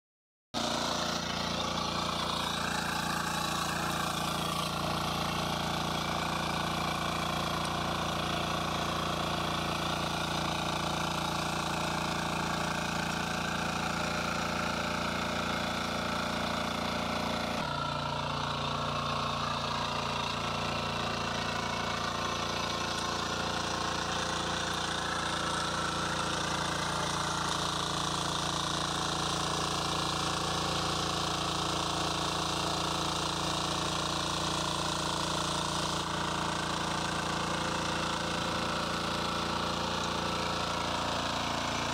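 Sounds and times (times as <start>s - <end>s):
power weeder engine running: 0.6s - 41.9s.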